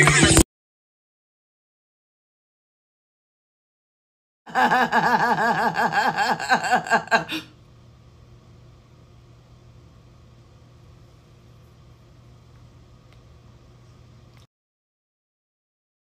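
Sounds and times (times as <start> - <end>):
faint low hum: 4.5 - 14.5.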